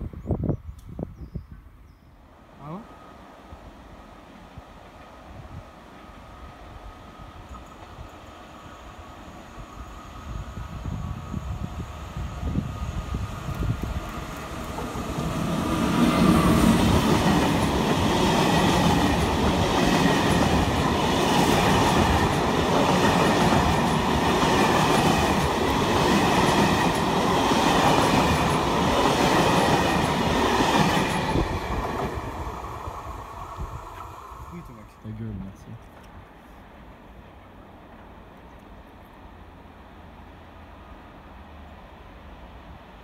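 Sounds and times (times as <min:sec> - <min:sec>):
train wheels clattering on rails: 0:13.5 - 0:32.6.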